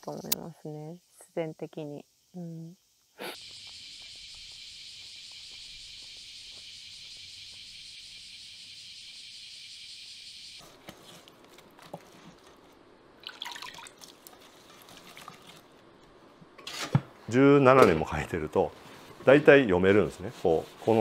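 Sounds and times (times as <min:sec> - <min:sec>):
insects chorus: 0:00.0 - 0:10.7
hands squelching wet mix in bowl: 0:13.8 - 0:15.8.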